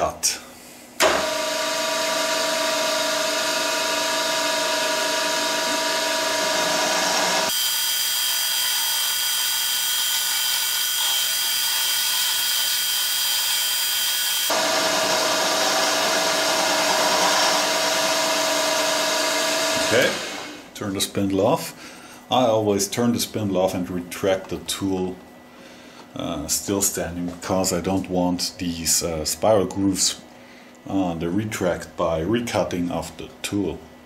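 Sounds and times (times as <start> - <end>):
milling machine hum and whine: 1.0 - 21.2.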